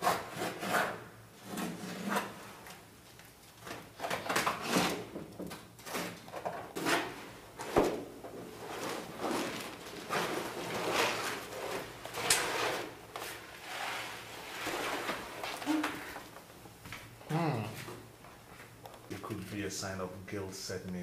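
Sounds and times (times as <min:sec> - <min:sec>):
canvas rustling and scraping: 0:08.4 - 0:16.2.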